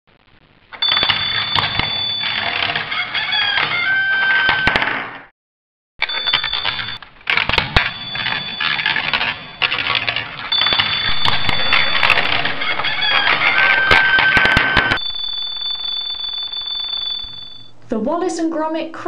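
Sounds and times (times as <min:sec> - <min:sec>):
high-pitched alarm tone: 0:00.8 - 0:02.8, 0:06.0 - 0:07.0, 0:07.6 - 0:17.8
ball bearings rattling down plastic chutes: 0:06.1 - 0:15.2.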